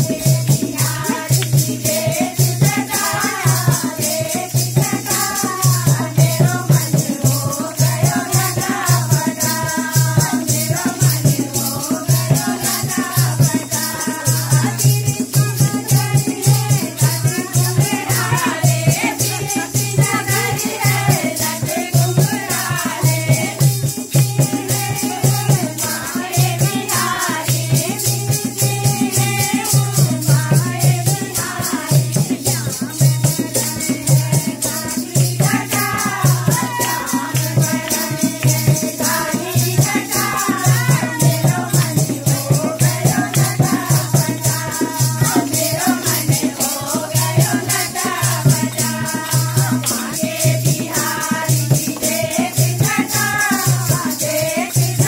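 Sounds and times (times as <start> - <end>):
drum beat: 0.0 - 55.0
rattling percussion: 0.0 - 55.0
voices singing devotional song: 0.0 - 55.0
hand clapping: 1.3 - 1.6.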